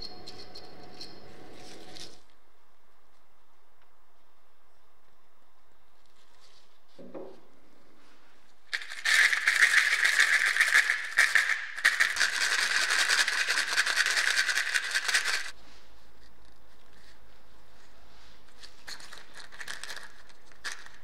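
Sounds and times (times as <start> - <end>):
screws rattling in plastic cup: 8.7 - 15.5, 18.6 - 21.0.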